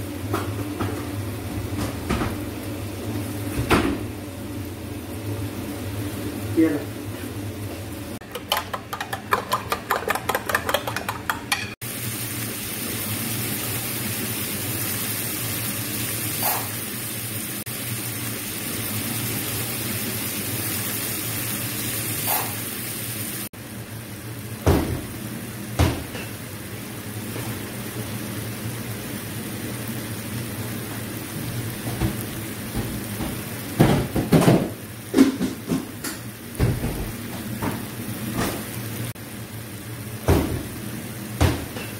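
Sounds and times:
tomatoes sizzling in oil: 0.0 - 41.9
utensil knocking against pan: 8.2 - 11.8.

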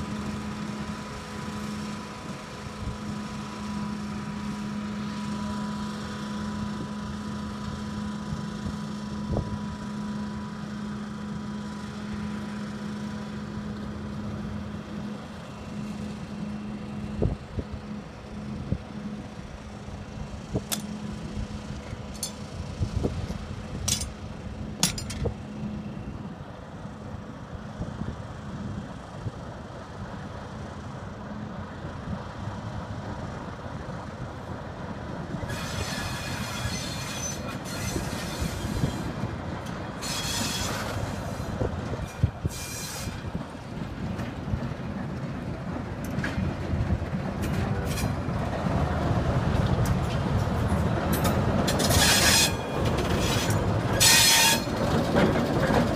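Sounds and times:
diesel locomotive idling hum: 0.0 - 55.9
sharp metallic clanks: 23.8 - 24.2, 24.8 - 25.4.

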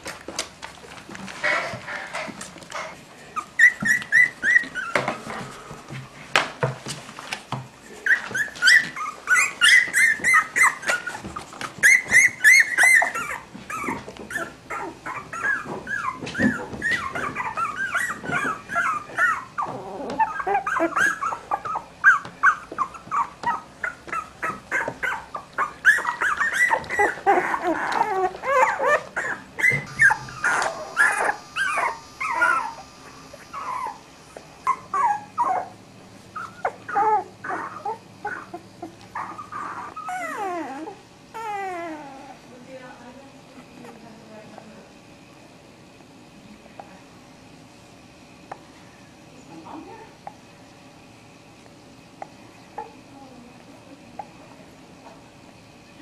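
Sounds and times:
puppies whimpering and squeaking: 1.3 - 6.0, 6.7 - 42.6, 43.5 - 44.3, 52.2 - 53.0.

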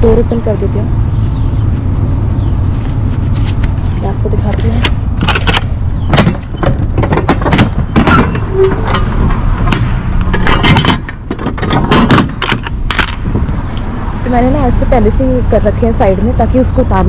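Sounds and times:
steady low rumble: 0.0 - 17.0
metal door clanks and rattles: 4.5 - 13.4.

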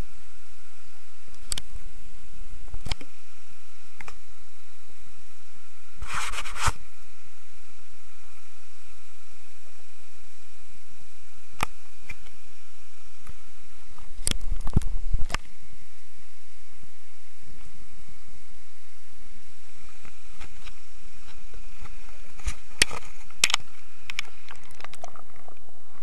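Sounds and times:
hand handling camera: 20.4 - 25.5.

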